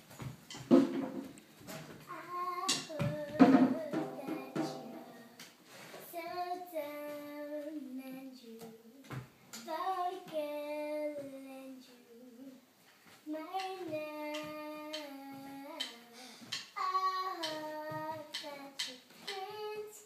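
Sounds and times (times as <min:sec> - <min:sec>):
sharp knocks: 0:00.5 - 0:01.3, 0:02.7 - 0:05.3
girl singing unaccompanied: 0:01.8 - 0:20.0.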